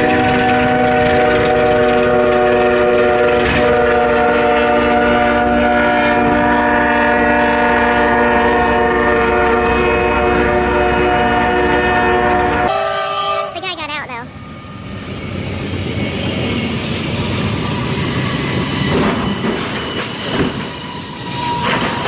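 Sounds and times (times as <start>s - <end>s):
locomotive air horn: 0.0s - 13.6s
train rumbling on rails: 0.0s - 22.0s.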